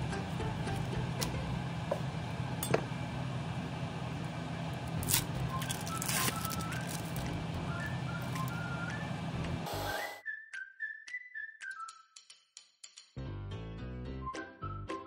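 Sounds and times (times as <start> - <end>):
kitchen utensils clicking and clinking: 2.6 - 2.8.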